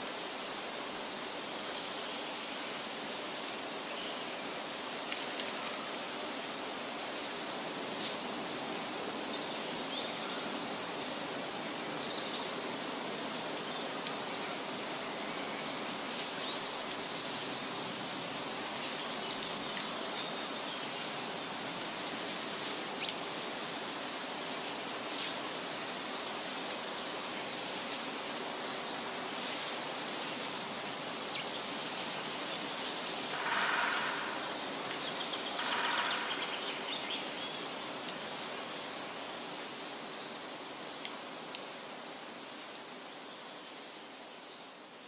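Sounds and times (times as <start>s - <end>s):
rushing outdoor hiss: 0.0s - 45.0s.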